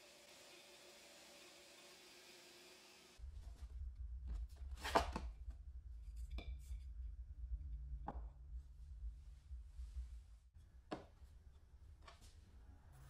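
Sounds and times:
low rumble: 5.3 - 10.5.

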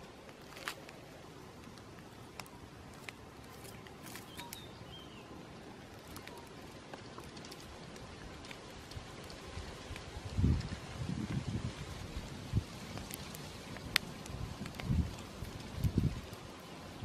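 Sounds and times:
light clicks and crackles: 0.0 - 4.7, 5.6 - 17.0
high bird chirps: 4.2 - 5.3.

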